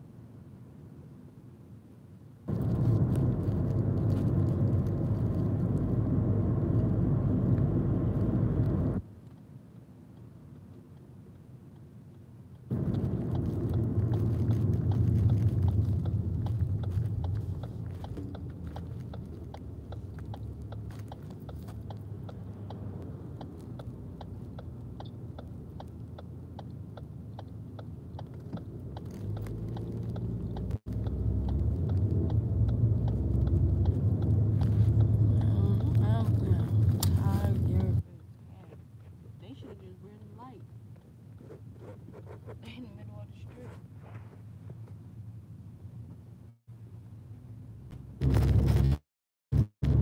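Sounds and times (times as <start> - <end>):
car cabin rumble: 2.5 - 9.0, 12.7 - 41.0, 49.6 - 50.0.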